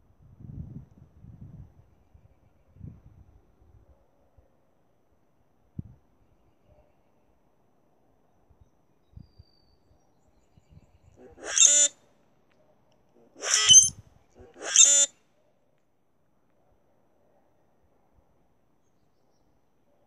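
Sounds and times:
grackle harsh squeaky song: 11.4 - 11.9, 13.4 - 13.9, 14.6 - 15.1.

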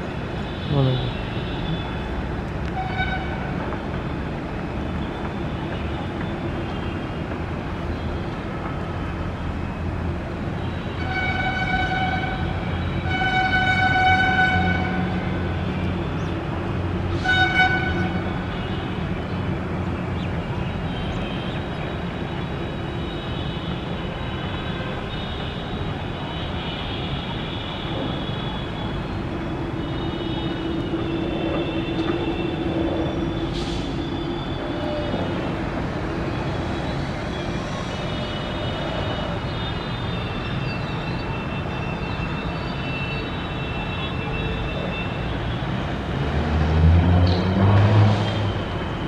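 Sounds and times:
distant jet engines taxiing: 27.2 - 49.0.

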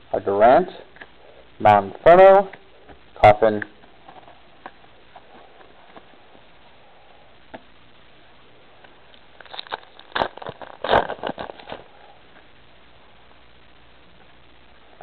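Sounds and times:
foil wrapper crinkling and tearing: 9.1 - 12.0.

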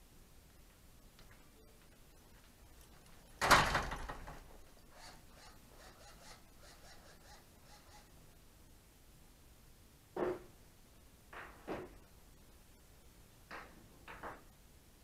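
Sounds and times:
door banging shut: 3.4 - 4.5.

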